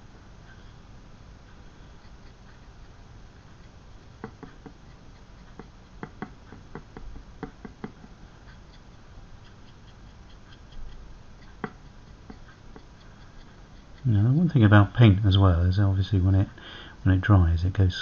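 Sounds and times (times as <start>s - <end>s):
paintbrush tapping on resin: 4.2s - 4.8s, 5.6s - 8.2s, 11.6s - 12.9s.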